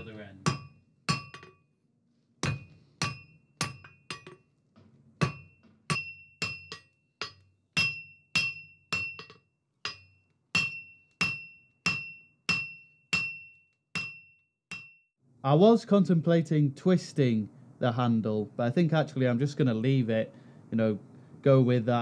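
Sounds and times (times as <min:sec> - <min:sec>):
hammer striking hot steel: 0:00.0 - 0:01.7, 0:02.4 - 0:04.5, 0:05.2 - 0:15.0.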